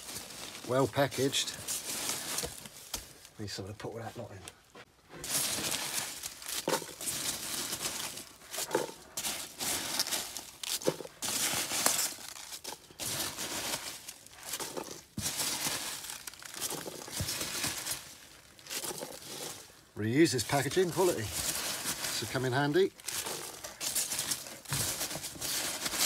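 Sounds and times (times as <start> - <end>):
packing peanuts and bubble wrap rustling: 0.0 - 4.3, 5.1 - 26.0.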